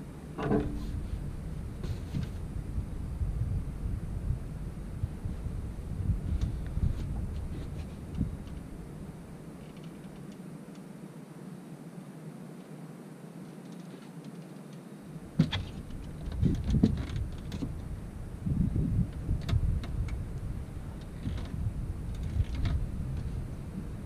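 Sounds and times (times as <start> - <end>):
faint steady hum: 0.0 - 24.0
low thumps and clicks on a boat: 0.4 - 1.0, 6.3 - 8.7, 15.4 - 17.9, 19.0 - 23.4.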